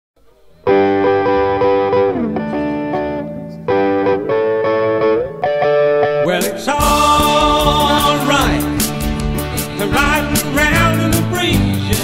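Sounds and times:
electric guitar chord riff: 0:00.6 - 0:12.0
rock band playing: 0:00.7 - 0:12.0
drums: 0:06.4 - 0:12.0.

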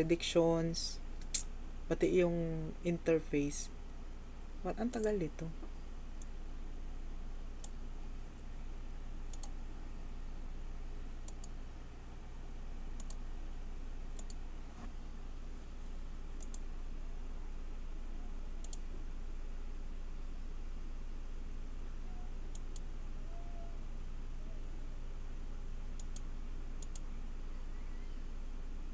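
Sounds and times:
low hum: 0:00.0 - 0:28.9
computer mouse clicks: 0:01.2 - 0:01.5, 0:04.8 - 0:06.3, 0:07.6 - 0:07.8, 0:09.3 - 0:09.6, 0:11.2 - 0:11.6, 0:13.0 - 0:13.2, 0:14.2 - 0:14.8, 0:16.3 - 0:16.7, 0:18.6 - 0:18.9, 0:22.4 - 0:22.9, 0:26.0 - 0:27.1.

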